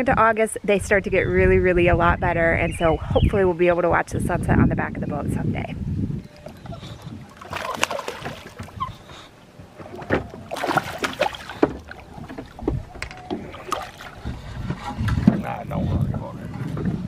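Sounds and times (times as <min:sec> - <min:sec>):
fish splashing and thrashing: 0:06.4 - 0:15.3
lapping water: 0:06.4 - 0:17.0.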